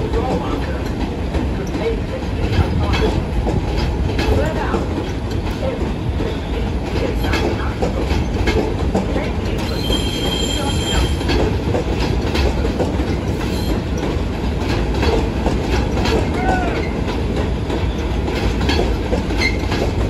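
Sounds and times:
low train rumble: 0.0s - 20.0s
train wheels clattering over rails: 0.0s - 20.0s
high-pitched wheel squeal: 9.7s - 11.2s.

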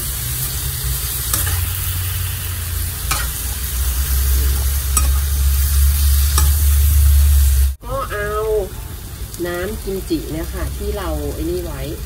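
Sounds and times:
food sizzling in hot oil: 0.0s - 12.0s
low hum: 0.6s - 7.8s
metal spatula scraping a wok: 0.7s - 7.7s.

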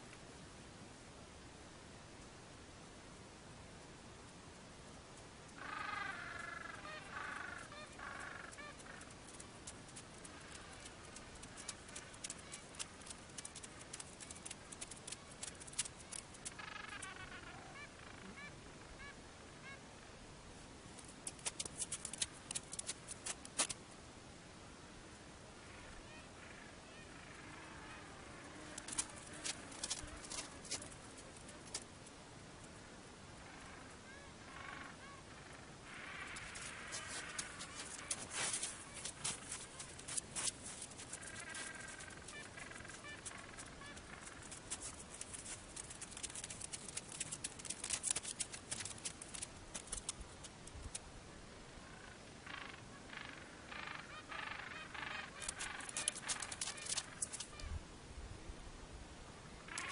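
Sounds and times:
penguin footsteps on snow: 7.7s - 17.2s, 21.0s - 23.8s, 28.6s - 31.9s, 36.3s - 51.0s, 55.3s - 57.7s.

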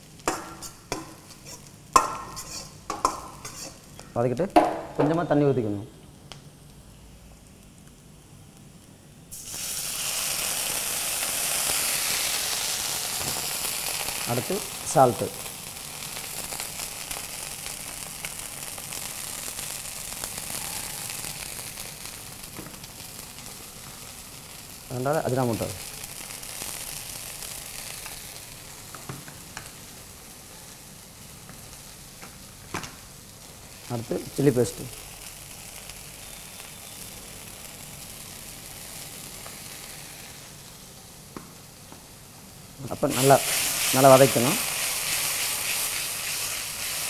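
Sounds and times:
vegetables sizzling in hot oil: 0.0s - 4.0s, 6.7s - 47.0s.

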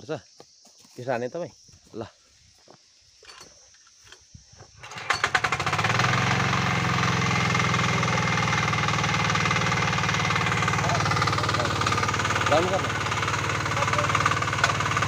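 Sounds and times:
small engine starting and running: 4.8s - 15.0s.

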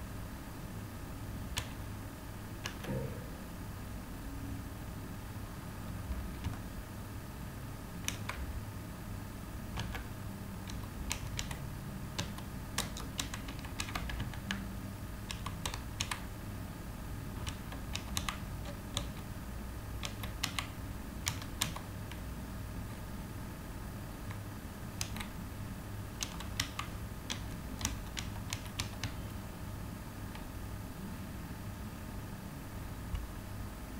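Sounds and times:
steady low hum: 0.0s - 33.9s
keyboard keystroke clicks: 1.5s - 1.8s, 2.6s - 3.2s, 6.4s - 6.7s, 8.0s - 8.5s, 9.7s - 11.6s, 12.2s - 14.6s, 15.3s - 16.2s, 17.4s - 19.3s, 20.0s - 22.2s, 25.0s - 25.4s, 26.2s - 29.4s.

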